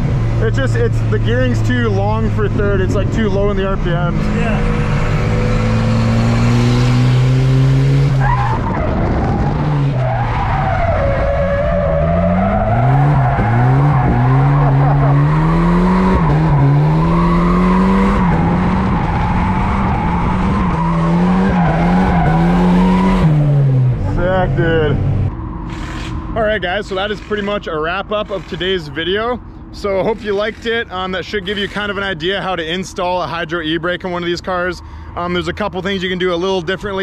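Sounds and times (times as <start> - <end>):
turbo car engine revving: 0.0 - 29.2
tyres squealing: 25.6 - 32.5.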